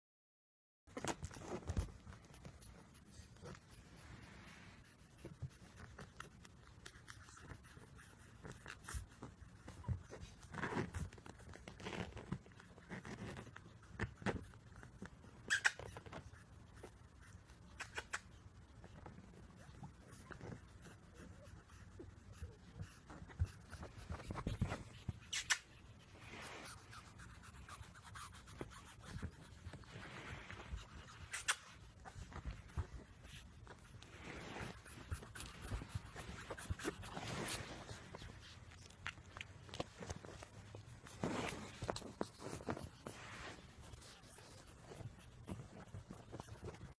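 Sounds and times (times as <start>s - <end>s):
puppies scratching and clicking: 0.9s - 3.7s, 5.1s - 26.1s, 26.9s - 43.2s, 43.8s - 46.9s
puppy squeaks: 15.4s - 16.2s, 25.2s - 25.7s.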